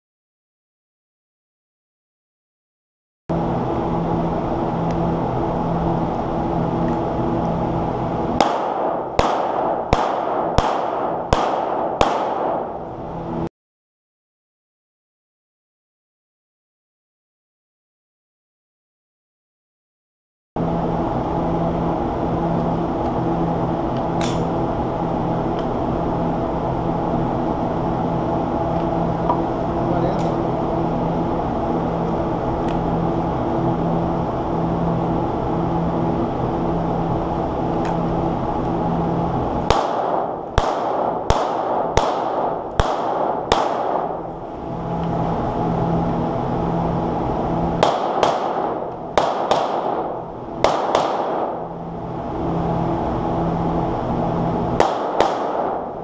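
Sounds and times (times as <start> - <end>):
steady drone with pulsing hum: 3.3 - 13.5, 20.6 - 56.0
pistol shots ringing: 8.4 - 12.8, 39.7 - 44.3, 47.8 - 51.7, 54.8 - 55.9.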